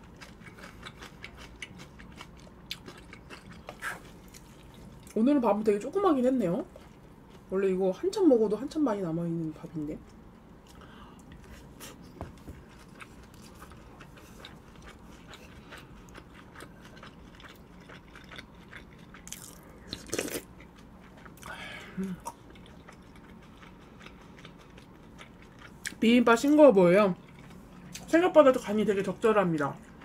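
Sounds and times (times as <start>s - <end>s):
wet chewing and mouth clicks: 0.0s - 5.2s, 12.3s - 21.5s, 22.2s - 26.0s.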